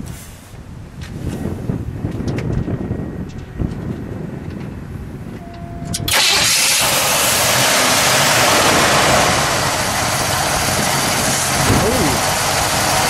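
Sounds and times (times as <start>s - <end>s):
car engine starting and running: 5.4s - 13.0s.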